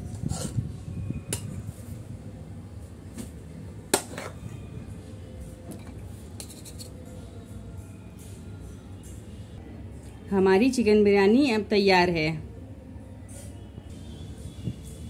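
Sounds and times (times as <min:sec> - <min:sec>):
spoon scraping plate: 0:00.2 - 0:00.6, 0:06.3 - 0:07.0.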